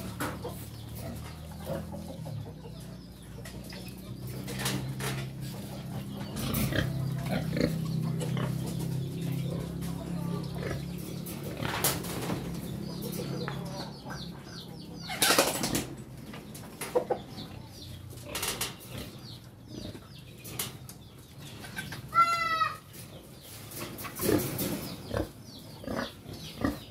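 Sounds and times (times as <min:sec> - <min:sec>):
chicken call: 0:22.1 - 0:22.8.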